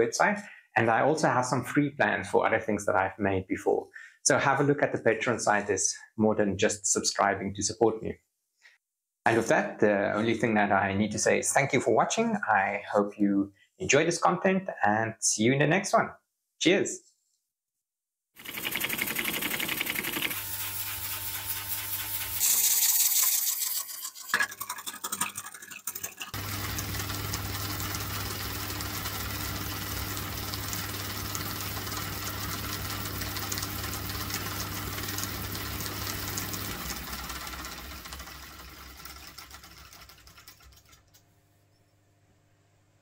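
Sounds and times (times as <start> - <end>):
model engine humming and clattering: 26.4 - 41.2.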